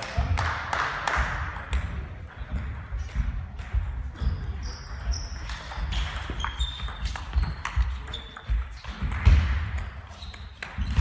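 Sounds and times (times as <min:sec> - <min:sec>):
shoe squeaks on floor: 0:04.2 - 0:09.0, 0:10.0 - 0:11.0.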